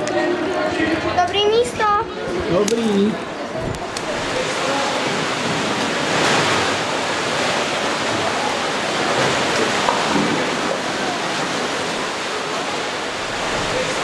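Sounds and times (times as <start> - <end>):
faint voices: 0.0 - 14.0
fast-flowing river water: 0.0 - 14.0.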